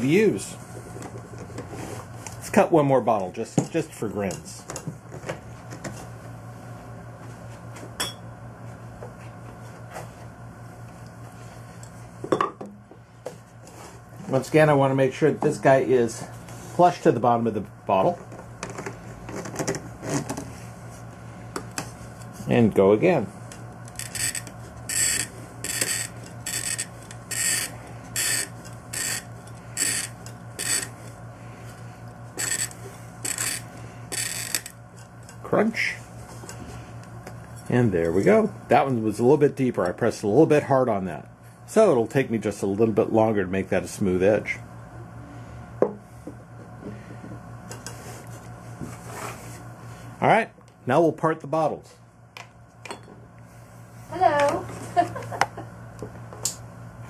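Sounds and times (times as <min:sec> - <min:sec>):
steady low hum: 0:00.0 - 0:57.0
glass cutter scoring bottle: 0:23.9 - 0:31.0, 0:32.3 - 0:34.8.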